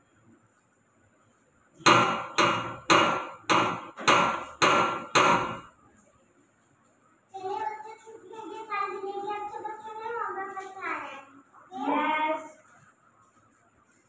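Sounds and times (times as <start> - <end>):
loud sharp knocks: 1.8 - 5.7.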